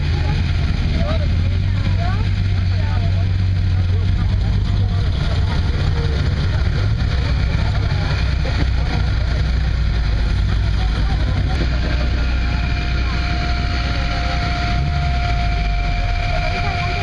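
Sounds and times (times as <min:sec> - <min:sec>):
car engines rumbling: 0:00.0 - 0:17.0
onlookers' voices: 0:00.0 - 0:17.0
steady high tone: 0:03.8 - 0:17.0.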